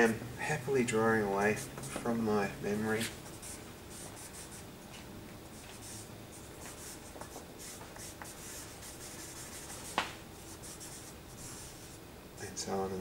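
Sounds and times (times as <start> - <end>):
drawing stick scratching paper: 1.5 - 4.6, 5.8 - 12.0.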